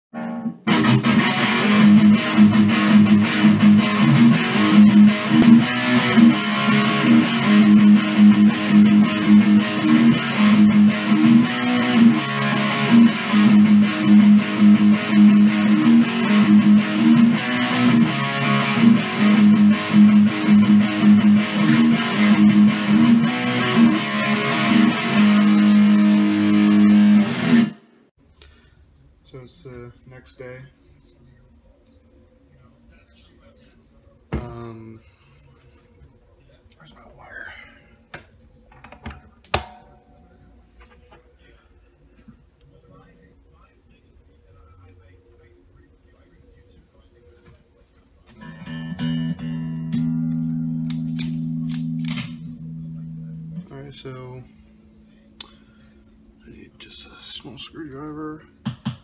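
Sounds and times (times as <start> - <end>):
guitar music with steady beat: 0.2 - 27.8, 48.3 - 59.0.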